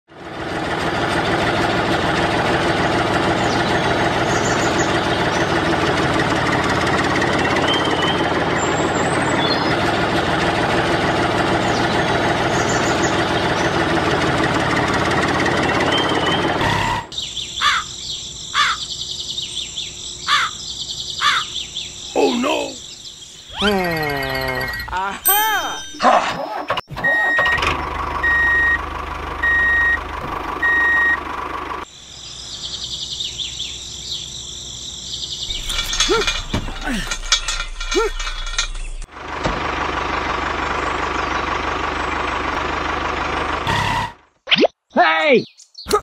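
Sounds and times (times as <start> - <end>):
engine running loudly: 0.1 - 17.1, 35.5 - 44.3
birds chirping: 2.7 - 10.2, 11.1 - 14.7, 15.6 - 27.3, 31.8 - 39.1, 40.2 - 42.6, 44.3 - 46.0.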